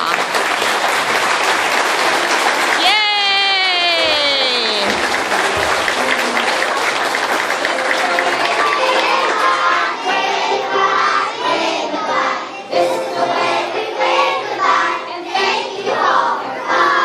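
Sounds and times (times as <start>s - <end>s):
recorded backing music: 4.9s - 17.0s
young children singing: 7.7s - 17.0s.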